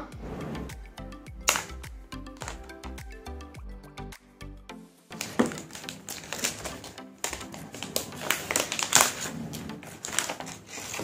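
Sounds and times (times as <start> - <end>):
plastic wrap crinkling: 5.2 - 11.0.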